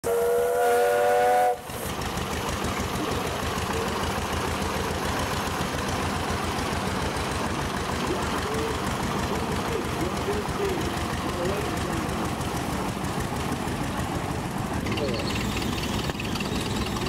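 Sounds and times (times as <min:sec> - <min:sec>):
steam whistle chord: 0:00.0 - 0:01.7
tractor engine running: 0:01.5 - 0:17.0.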